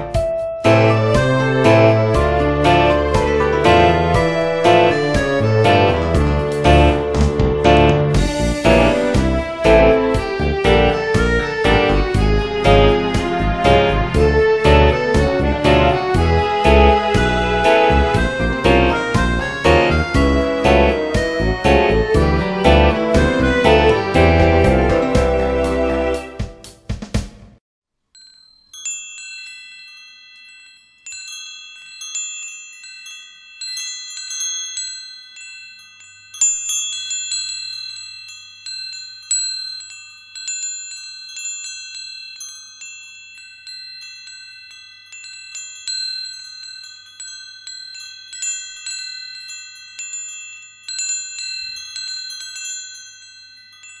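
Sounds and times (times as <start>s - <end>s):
wind chimes ringing: 28.2s - 54.0s.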